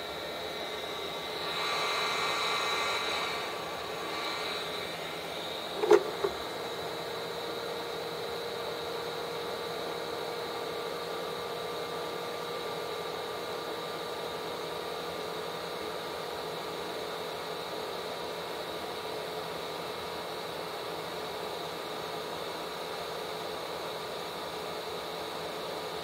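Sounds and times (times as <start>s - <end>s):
hot air blower fan hissing: 0.0s - 26.0s
handle knocking into cradle: 5.8s - 6.4s.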